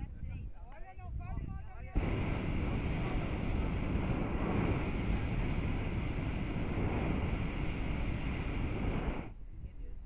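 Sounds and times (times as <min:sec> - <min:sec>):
propane burner roaring: 0:02.0 - 0:09.3.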